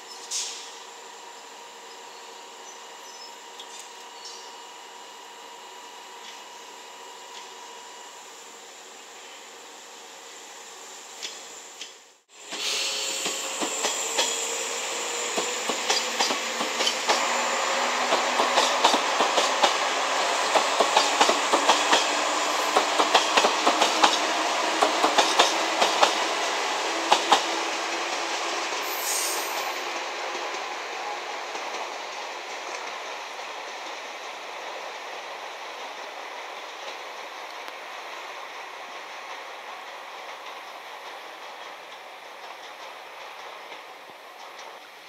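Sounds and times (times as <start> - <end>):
train wheels clicking over rail joints: 11.2 - 30.6, 39.0 - 45.0.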